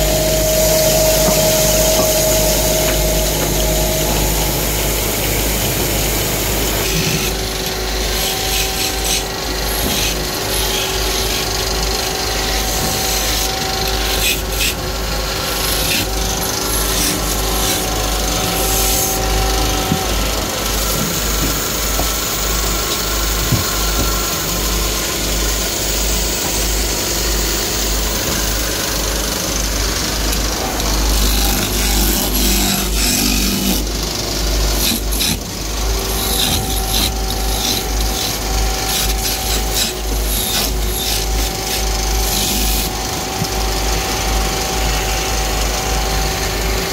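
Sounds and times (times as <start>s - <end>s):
electric motor hum: 0.0s - 46.9s
chisel scraping spinning wood: 29.9s - 42.9s.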